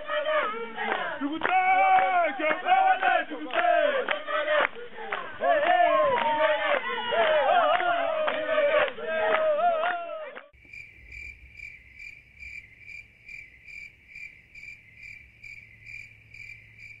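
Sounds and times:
group singing: 0.0 - 10.5
cricket chirping: 10.6 - 17.0.

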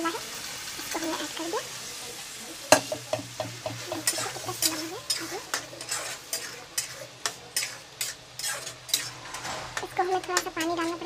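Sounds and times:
curry sizzling: 0.0 - 11.0
metal spatula scraping a pot: 3.7 - 11.0.

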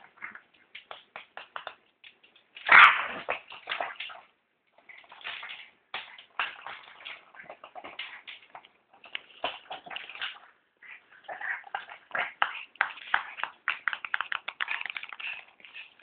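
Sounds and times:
dog claws clicking on tiles: 0.1 - 4.2, 11.3 - 16.0.

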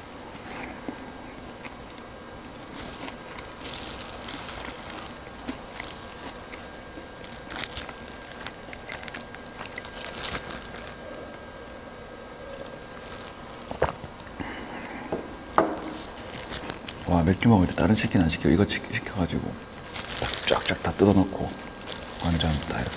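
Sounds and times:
person chewing crispy chicken: 0.3 - 11.8, 15.9 - 17.3, 19.7 - 22.9.

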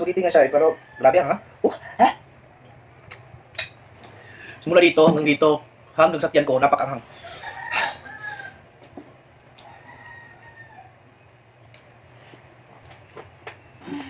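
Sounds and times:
rooster crowing: 0.2 - 1.6, 7.1 - 9.0, 9.6 - 11.3.

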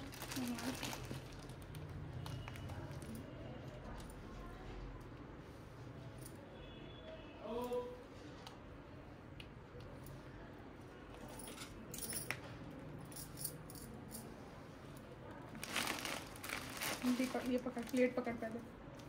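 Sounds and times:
bangles clinking: 11.3 - 14.3.

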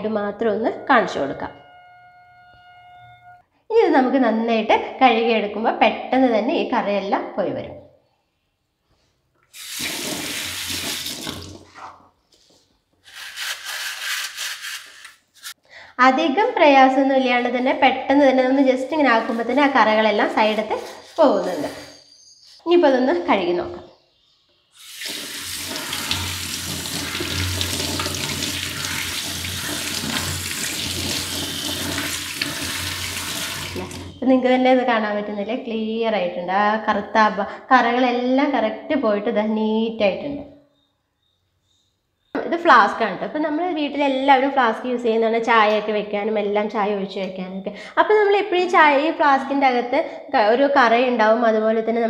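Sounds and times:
metal strainer rubbed under water: 1.0 - 3.4, 13.0 - 15.6, 18.9 - 21.9
tap water running into sink: 9.5 - 11.7, 24.8 - 34.2.

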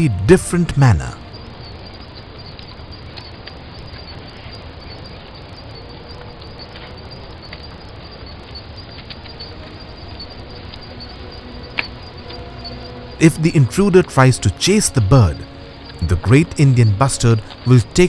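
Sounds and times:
faint chirps: 0.0 - 18.0
faint ticks: 1.2 - 13.6
even hiss: 9.2 - 18.0.

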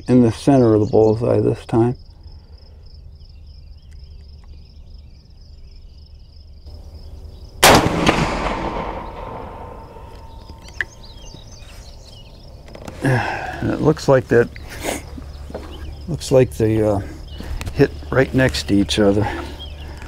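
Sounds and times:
rifle shot: 7.6 - 11.1.

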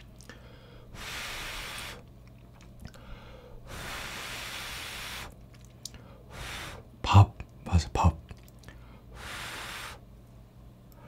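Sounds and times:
person blowing on noodles: 0.9 - 2.0, 3.6 - 5.4, 6.3 - 6.9, 9.1 - 10.1.

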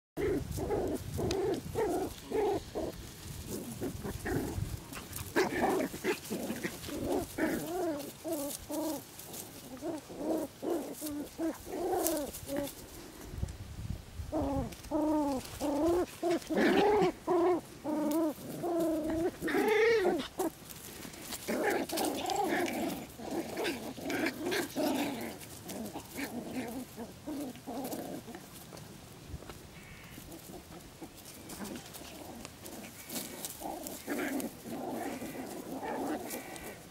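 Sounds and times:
puppies yipping and whining: 14.4 - 20.6.

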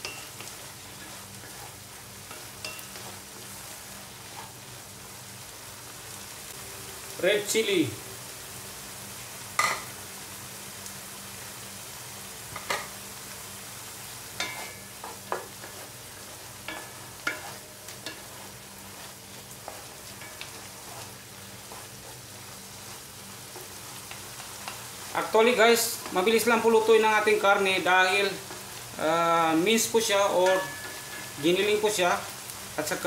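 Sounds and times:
wooden spatulas scraping pan: 0.0 - 4.6, 14.4 - 28.8
meat frying with sizzle: 0.0 - 33.0.

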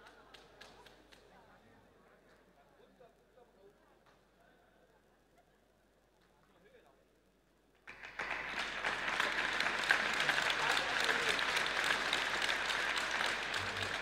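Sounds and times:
audience applauding: 7.9 - 14.0.

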